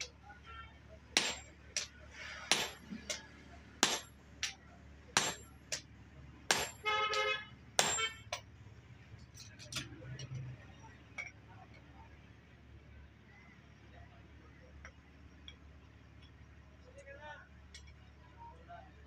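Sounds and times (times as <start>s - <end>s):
hammer striking metal on anvil: 1.2s - 1.9s, 2.5s - 3.2s, 3.8s - 4.6s, 5.2s - 5.9s, 6.5s - 8.4s.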